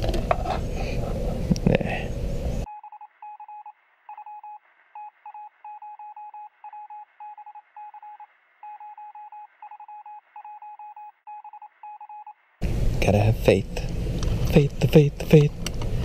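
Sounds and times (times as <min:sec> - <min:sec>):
morse code beeping: 0:02.7 - 0:12.3.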